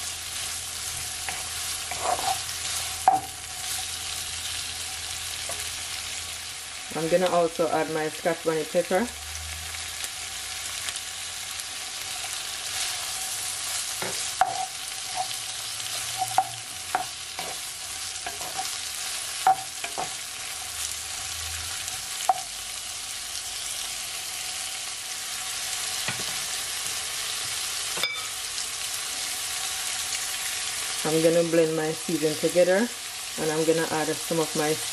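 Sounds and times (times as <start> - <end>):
vegetables sizzling in oil: 0.0 - 34.9
spatula scraping a pan: 0.9 - 4.2, 12.8 - 20.2.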